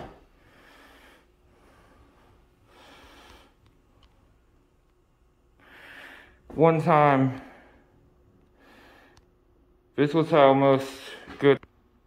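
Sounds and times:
faint breathing: 0.0s - 4.4s, 5.5s - 6.5s, 7.2s - 9.5s.

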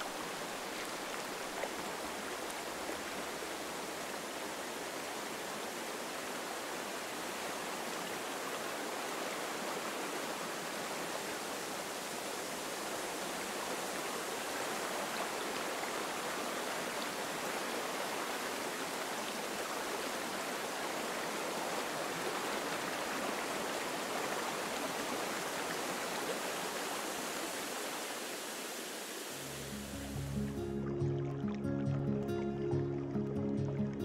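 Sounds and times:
running stream water: 0.0s - 34.0s.

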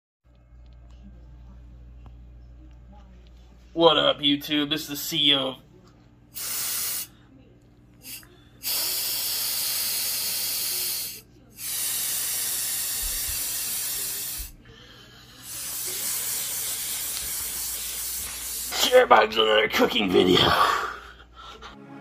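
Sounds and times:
aerosol can hissing: 6.4s - 7.1s, 8.1s - 14.6s, 15.4s - 18.9s.

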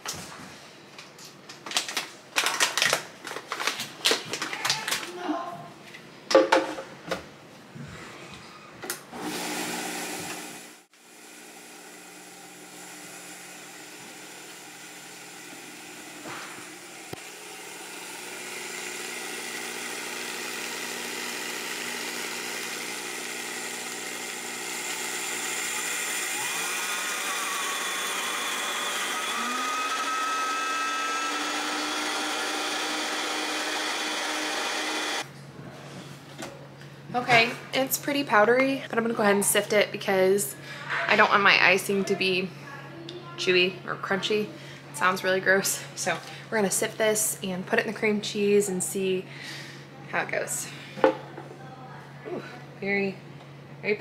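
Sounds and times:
blender motor grinding sugar: 9.2s - 35.3s.

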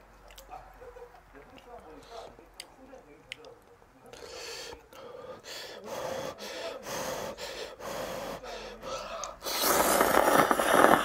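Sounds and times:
person blowing on noodles: 9.4s - 11.0s
slurping noodles: 9.4s - 11.0s.

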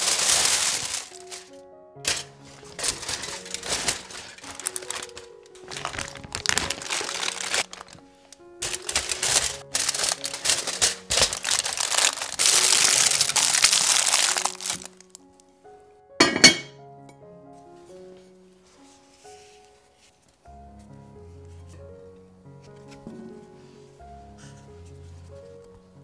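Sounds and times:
leaf and foil crackling: 0.0s - 15.5s
background music: 0.0s - 26.0s.

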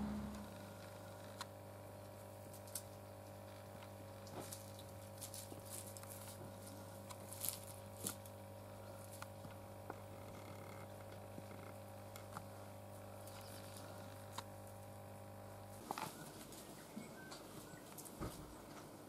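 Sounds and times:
low hum: 0.0s - 5.1s
bird feet scratching in dry grass: 4.2s - 9.4s.

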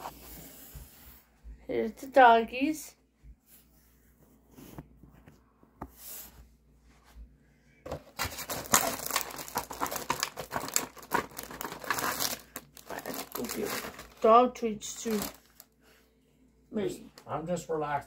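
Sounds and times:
plastic bag crinkling: 7.9s - 15.7s.

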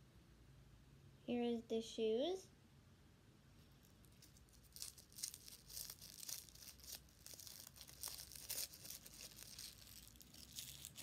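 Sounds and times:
plastic wrapper crinkling: 3.7s - 11.0s.

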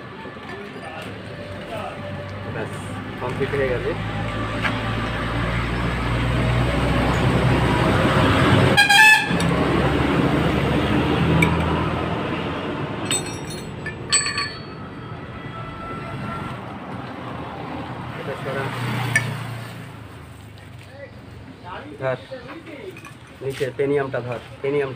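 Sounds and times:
traffic rumble: 0.0s - 24.9s
sharp metallic clinks: 13.0s - 15.0s.

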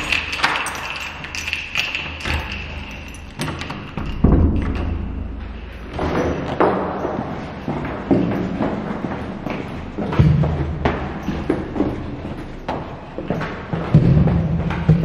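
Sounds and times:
door handle and door opening: 0.0s - 5.1s
keys clicking in door lock: 0.0s - 5.1s.

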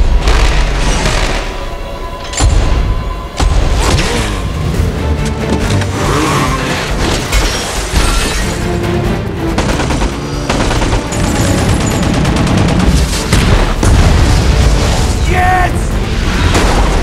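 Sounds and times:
tense score music: 0.0s - 17.0s
vehicle noise: 3.7s - 8.0s.

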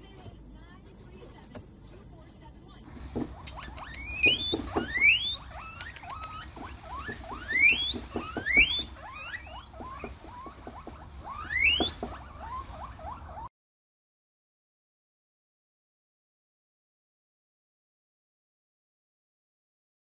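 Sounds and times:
guinea pigs squealing: 2.9s - 13.5s
short chirping squeaks: 3.3s - 13.5s.

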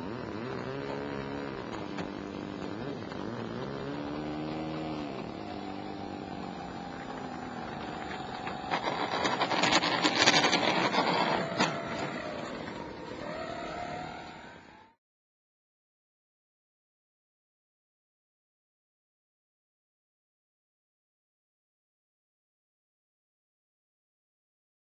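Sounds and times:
model plane motor whine: 0.0s - 15.0s.

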